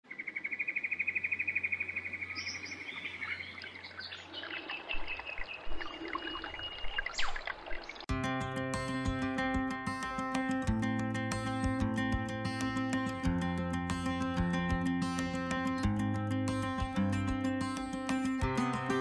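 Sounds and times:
bird chirps and calls: 0.1 - 8.0
acoustic guitar music: 8.1 - 19.0.

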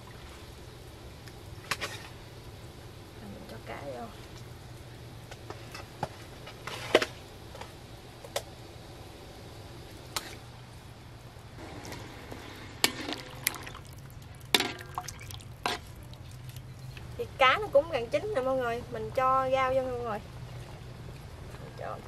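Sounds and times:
liquid sloshing and pouring: 12.8 - 16.8.

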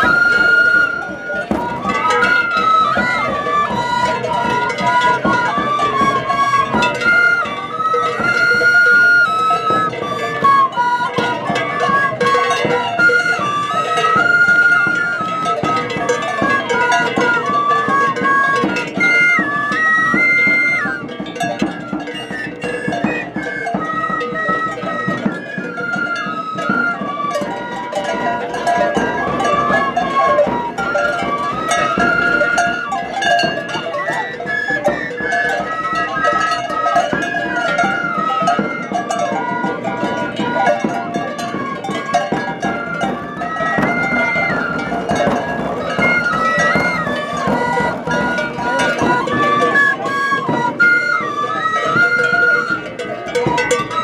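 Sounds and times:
cane flutes playing melody: 0.0 - 54.0
steady percussion beat: 0.0 - 54.0.

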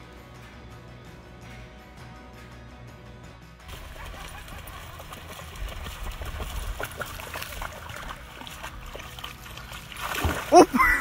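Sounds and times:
dog paws splashing in water: 3.7 - 11.0.

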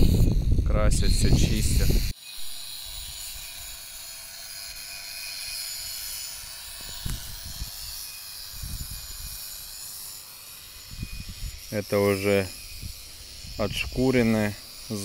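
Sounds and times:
wind gusts on microphone: 0.0 - 2.1, 6.8 - 7.9, 8.5 - 9.4, 10.9 - 11.7, 12.6 - 14.5
faint high whine: 0.0 - 3.9, 4.7 - 15.0
steady hiss: 1.3 - 15.0.

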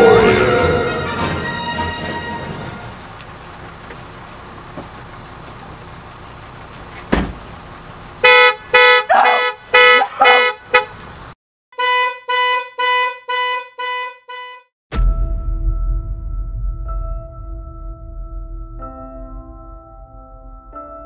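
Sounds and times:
thump: 7.1 - 7.5
car alarm horn honking: 8.2 - 11.0, 11.7 - 14.7.

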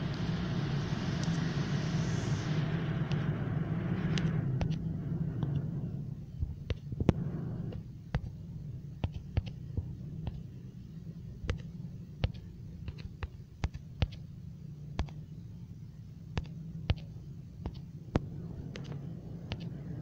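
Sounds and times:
low hum: 0.0 - 20.0
typing taps on phone screen: 9.0 - 10.5, 11.4 - 14.2, 15.0 - 15.2, 16.3 - 19.7.

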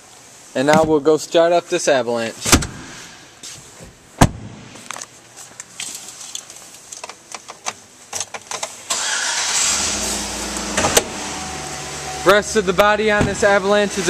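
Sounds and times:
thump: 2.5 - 3.0, 4.2 - 4.8
car engine starting and idling: 8.8 - 14.0.

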